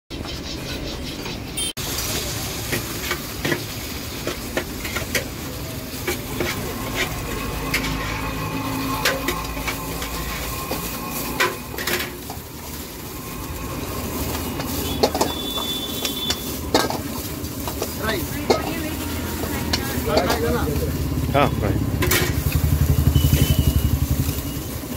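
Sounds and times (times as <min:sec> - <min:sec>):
food frying: 0:01.7 - 0:24.9
gas burner noise: 0:01.8 - 0:24.9
ladle clanking against a wok: 0:02.1 - 0:21.1.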